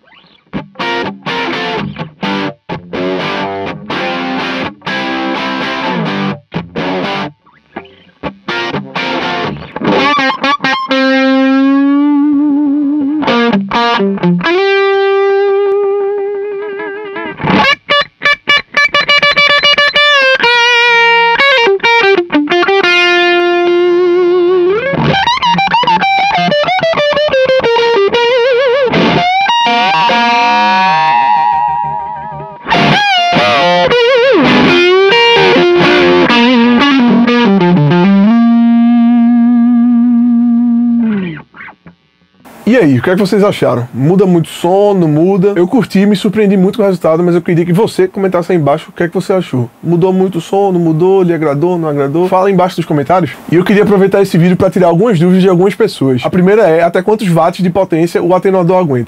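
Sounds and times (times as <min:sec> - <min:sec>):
distorted electric guitar lead: 0:00.0 - 0:45.6.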